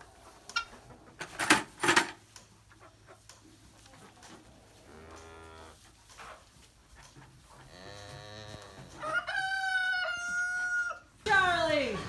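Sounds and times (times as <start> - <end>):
rooster crowing: 9.0 - 11.1.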